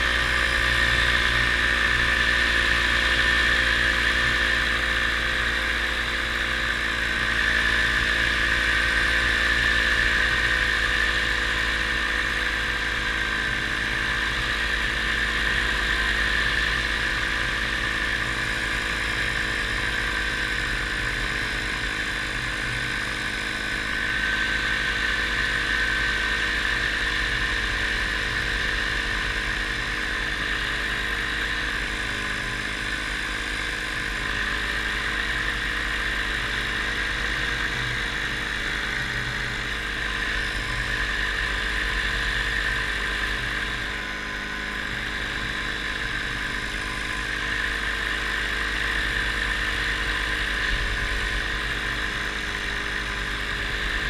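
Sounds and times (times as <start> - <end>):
paramotor engine droning: 0.0 - 54.0.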